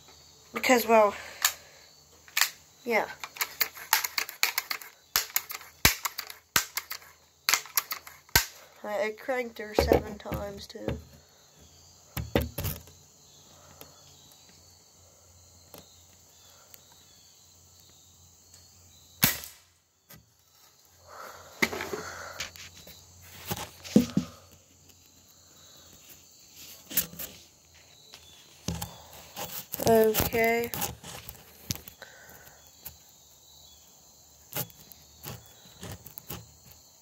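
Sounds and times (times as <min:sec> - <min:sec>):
gun handling clicks: 0:02.3 - 0:02.6, 0:03.2 - 0:08.6
gun scraping and clicking: 0:03.2 - 0:08.6.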